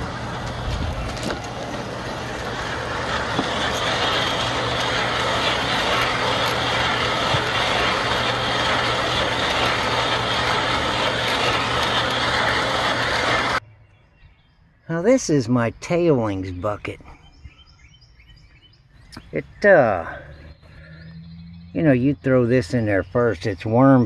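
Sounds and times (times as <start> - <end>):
compost tumbling in mesh drum: 0.0 - 13.6
mechanical drive hum: 0.0 - 13.6.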